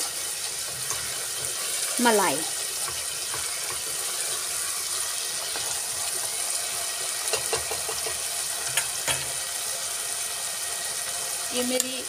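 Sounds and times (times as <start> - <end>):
masala sizzling in oil: 0.0 - 12.0
spatula knocking against pan: 2.8 - 4.0, 7.2 - 9.4.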